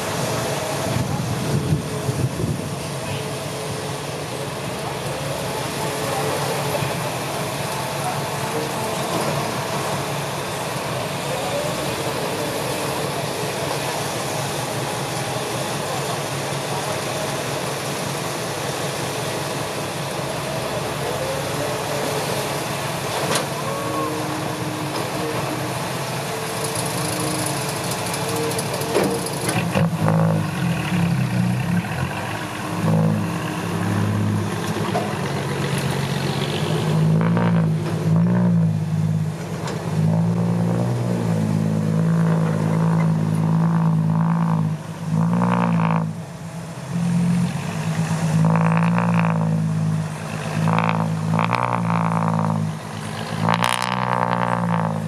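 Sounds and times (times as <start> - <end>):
diesel truck engine revving: 0.0 - 55.0.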